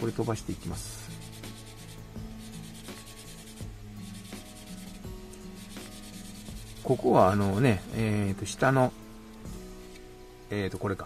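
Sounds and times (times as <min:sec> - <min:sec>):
sandpaper rubbing on plastic: 0:00.0 - 0:07.6
background music: 0:00.0 - 0:11.0.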